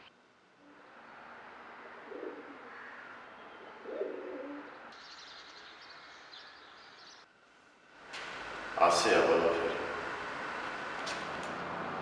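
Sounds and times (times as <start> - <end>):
outdoor ambience hiss: 0.0 - 12.0
dove cooing: 1.9 - 3.0, 3.6 - 4.8
small birds chirping: 2.2 - 7.3.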